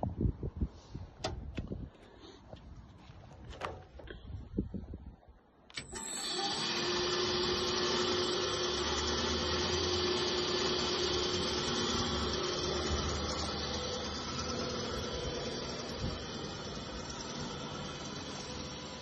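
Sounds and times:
electric motor whine and hum: 5.8 - 19.0.

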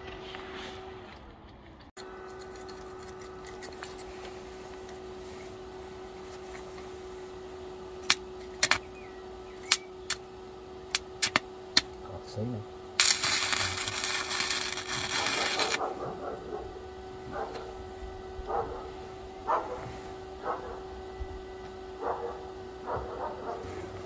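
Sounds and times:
steady hum: 0.0 - 24.0
welding electrode crackling: 10.9 - 11.9, 12.9 - 15.9.

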